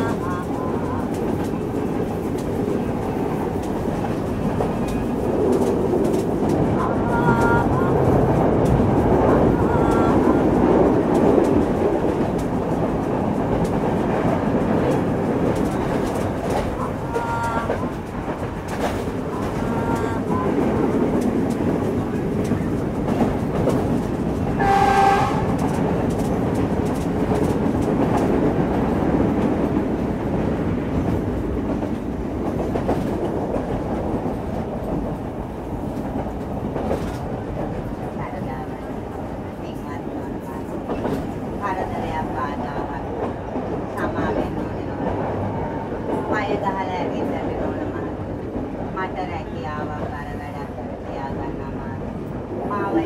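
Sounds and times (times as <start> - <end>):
train wheels rumbling on rail: 0.0 - 53.0
wind noise: 0.0 - 53.0
train horn: 24.6 - 25.6.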